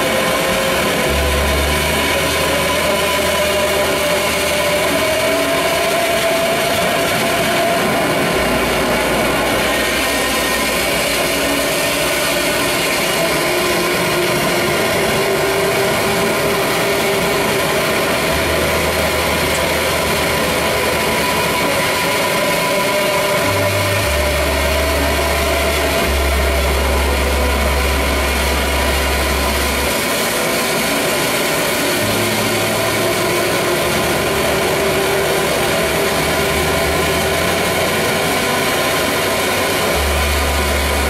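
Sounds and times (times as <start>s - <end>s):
distorted bass and synthesizer noise: 0.0s - 41.0s
pitch-bending drone: 0.0s - 41.0s
deep low tone: 7.8s - 30.5s.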